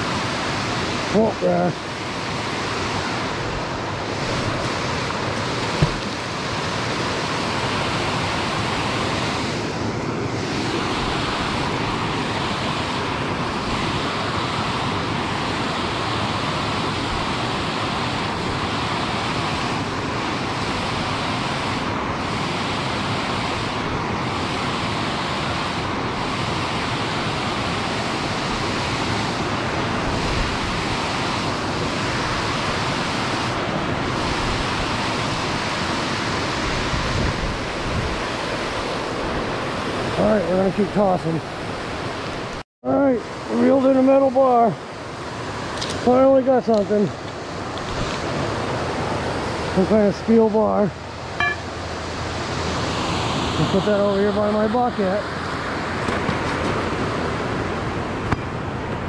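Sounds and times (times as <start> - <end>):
brief thump: 5.8 - 6.1.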